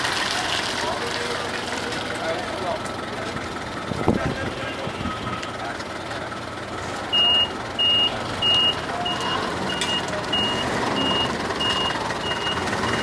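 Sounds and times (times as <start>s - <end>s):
reversing alarm beeping: 7.1s - 13.0s.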